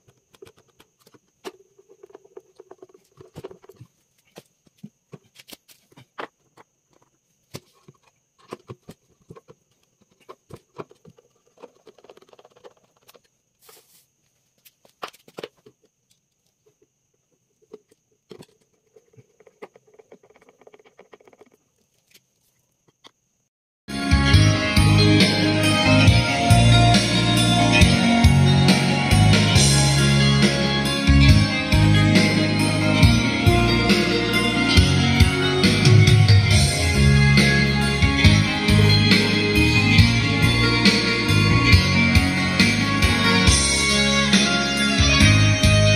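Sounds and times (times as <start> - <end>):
screwdriver clicks and scrapes on wood: 0.0 - 3.9.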